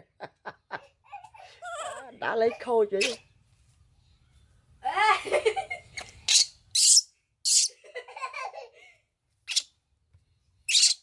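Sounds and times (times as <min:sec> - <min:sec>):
baby monkey squealing and crying: 0:03.0 - 0:03.2, 0:06.2 - 0:07.8, 0:09.5 - 0:09.7, 0:10.7 - 0:11.0.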